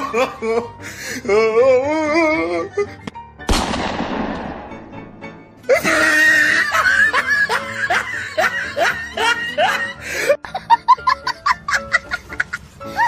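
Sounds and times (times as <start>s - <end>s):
background music: 0.0s - 13.0s
laughter sound effect: 5.6s - 13.0s.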